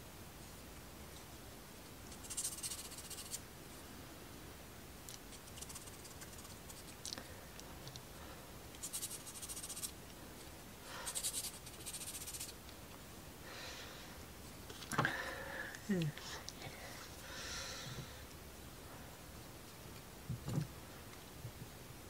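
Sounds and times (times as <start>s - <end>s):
sandpaper rubbing on wood: 2.2s - 3.4s, 5.3s - 6.9s, 8.8s - 9.9s, 11.1s - 12.6s.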